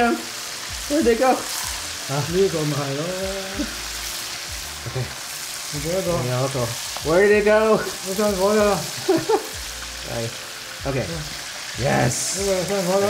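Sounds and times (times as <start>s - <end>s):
chicken sizzling in hot oil: 0.0s - 13.0s
person speaking: 10.0s - 13.0s.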